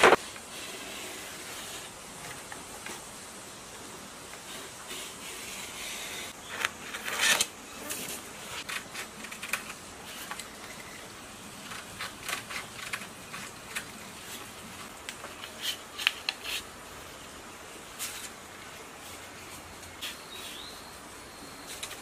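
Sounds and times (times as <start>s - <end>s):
paper rustling: 17.8s - 20.7s.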